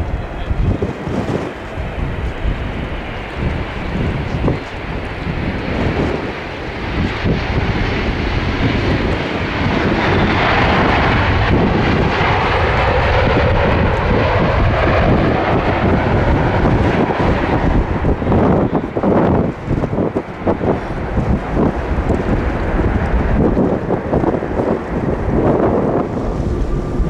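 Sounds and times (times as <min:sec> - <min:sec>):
jet engines roaring: 0:00.0 - 0:27.0
wind buffeting microphone: 0:00.0 - 0:27.0.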